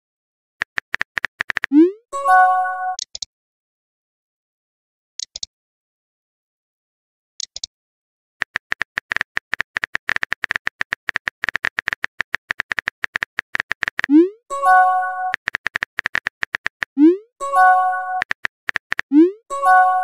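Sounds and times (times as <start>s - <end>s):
phone keyboard typing clicks: 0.6s - 1.8s, 7.4s - 7.7s, 8.4s - 14.2s, 15.2s - 17.0s, 18.1s - 19.2s.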